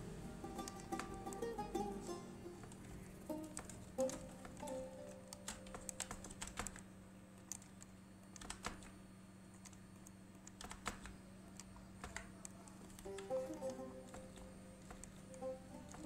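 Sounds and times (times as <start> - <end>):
low steady hum: 0.0 - 16.0
keyboard and mouse clicking: 2.6 - 16.0.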